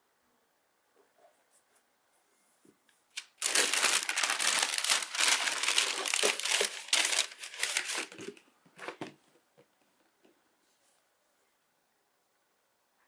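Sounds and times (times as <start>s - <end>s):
tissue paper rustling and crinkling: 3.2s - 8.4s.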